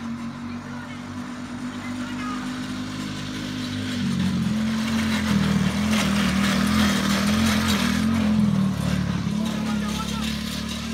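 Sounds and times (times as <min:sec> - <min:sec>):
small atv engine running: 0:00.0 - 0:10.9.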